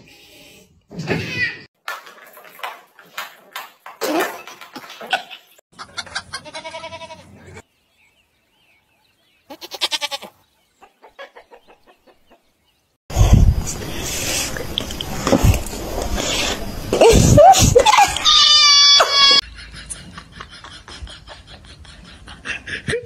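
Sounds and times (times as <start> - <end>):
goats bleating: 6.3 - 7.3, 9.5 - 10.3.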